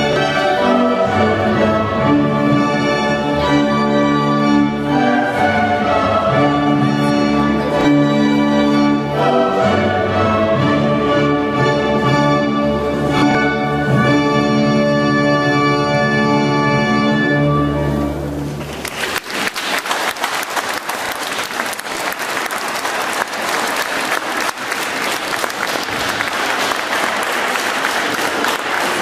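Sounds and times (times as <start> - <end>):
orchestral church music with choir: 0.0 - 29.0
congregation applauding: 18.5 - 29.0.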